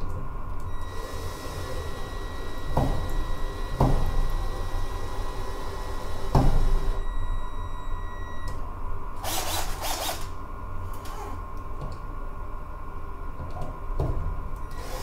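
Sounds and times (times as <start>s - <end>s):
cordless drill motor whine: 0.7s - 7.2s, 9.2s - 10.4s, 14.7s - 15.0s.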